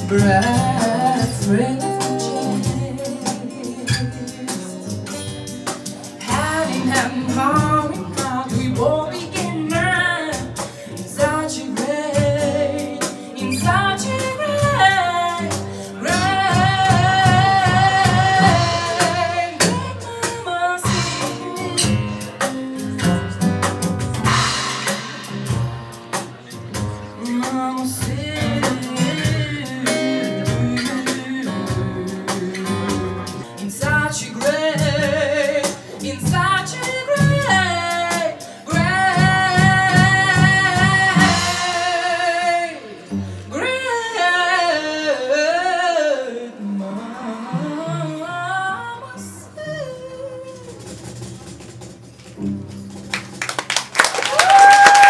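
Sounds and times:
woman singing with vibrato: 0.0s - 5.6s, 6.2s - 23.8s, 27.2s - 51.1s
acoustic guitar: 0.0s - 55.0s
cello: 46.7s - 49.3s.

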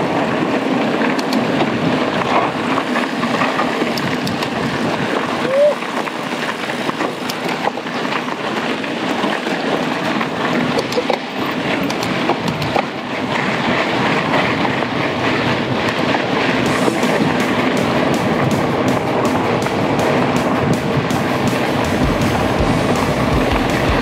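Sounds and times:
bike rattling: 0.0s - 24.0s
tyres on loose dirt: 0.0s - 24.0s
sharp clicks and knocks: 1.1s - 1.6s, 2.2s - 5.3s, 10.7s - 12.9s, 15.9s - 24.0s.

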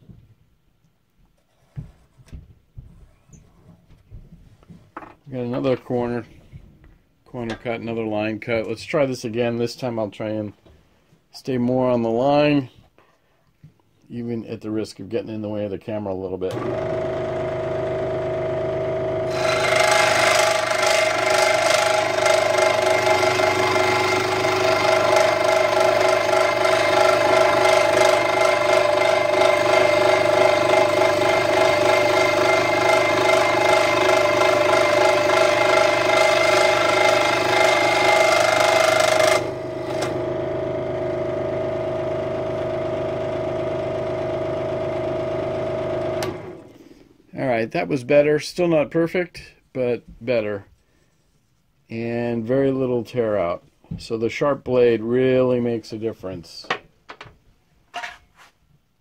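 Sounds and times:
scroll saw motor hum: 16.5s - 46.9s
saw blade cutting wood: 19.2s - 40.2s.

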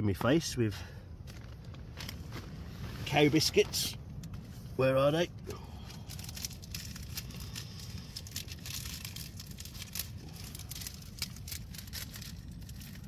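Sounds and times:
plastic bags crinkling: 5.6s - 13.0s.

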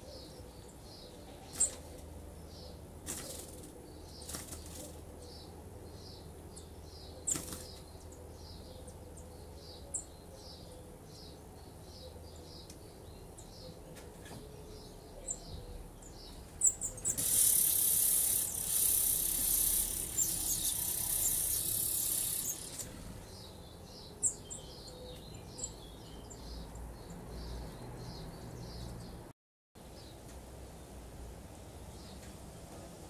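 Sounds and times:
short high bird chirps: 16.6s - 22.8s
nestlings begging calls: 16.6s - 23.4s.

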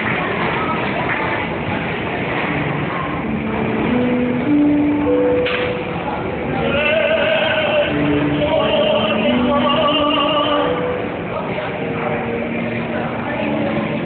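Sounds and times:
operatic male singing: 6.6s - 11.0s.

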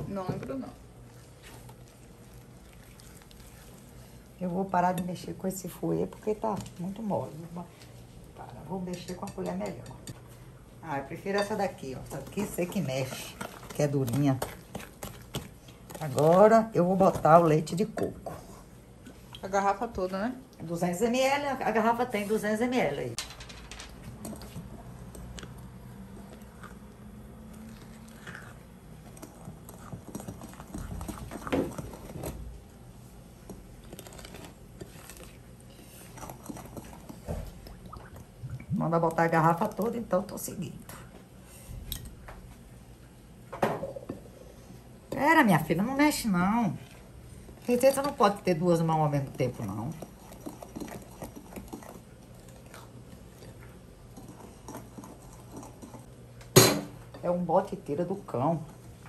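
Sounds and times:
spoon stirring batter: 0.0s - 10.3s, 11.1s - 19.6s, 33.3s - 37.8s, 46.8s - 56.1s.

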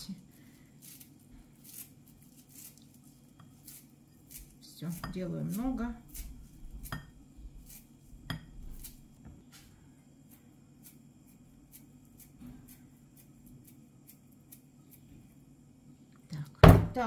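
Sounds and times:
scissors snipping dill: 3.6s - 7.0s.

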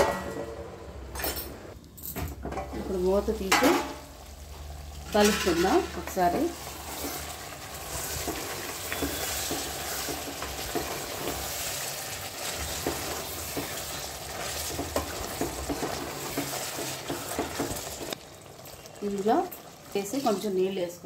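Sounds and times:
curry sizzling in a pot: 2.8s - 21.0s
spatula scraping a pot: 6.6s - 18.0s.

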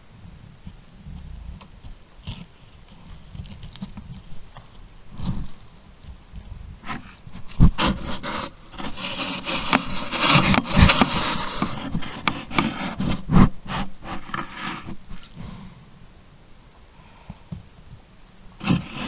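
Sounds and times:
fur scraping on camera housing: 6.8s - 15.4s, 18.6s - 19.0s.

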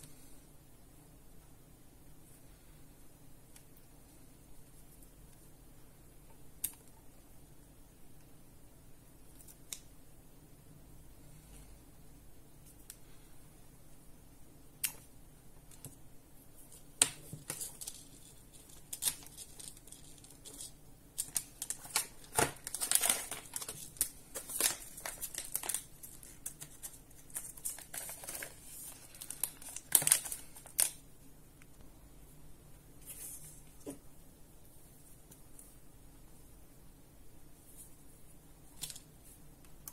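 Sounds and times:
crinkling: 16.6s - 31.9s.

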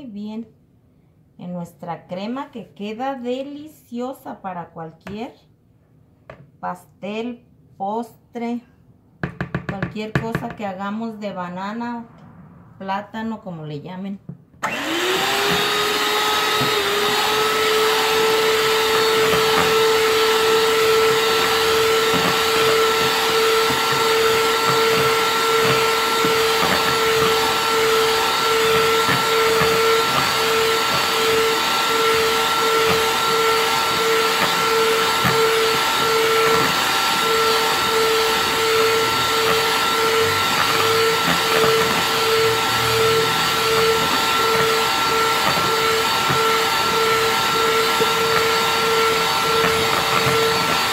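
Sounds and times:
electric hand mixer whining: 14.6s - 50.9s.

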